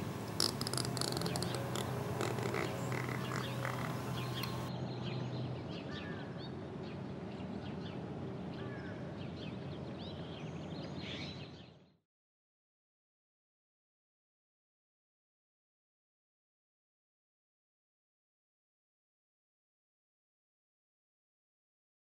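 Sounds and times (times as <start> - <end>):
birds chirping: 0.0 - 7.0
steady background noise: 0.0 - 11.0.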